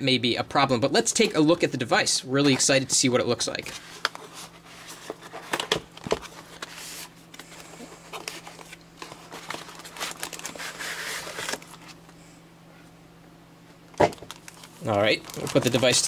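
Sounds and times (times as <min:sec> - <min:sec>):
plastic wrap rustling: 0:03.6 - 0:12.0, 0:14.0 - 0:16.0.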